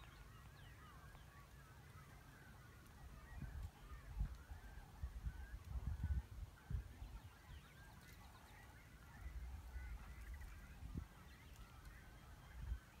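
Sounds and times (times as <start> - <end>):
faint bird calls: 0.0 - 13.0
wind rumble on microphone: 3.0 - 8.4, 9.2 - 13.0.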